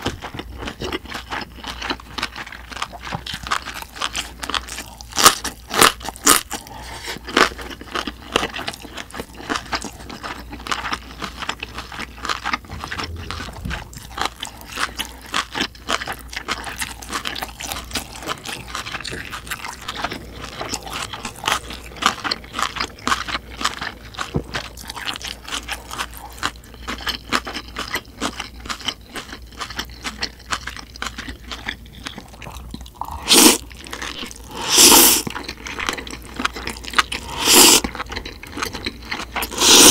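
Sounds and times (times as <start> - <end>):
wet chewing and crunching: 0.0 - 39.9
slurping noodles: 32.5 - 35.4, 36.8 - 39.9.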